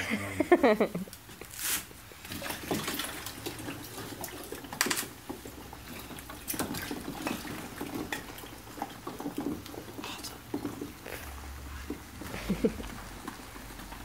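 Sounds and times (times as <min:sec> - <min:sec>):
ice water sloshing and splashing: 0:02.1 - 0:14.0.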